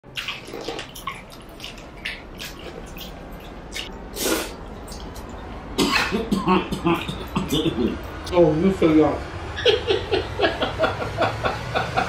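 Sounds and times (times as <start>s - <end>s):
wet chewing and lip smacks: 0.1s - 5.5s.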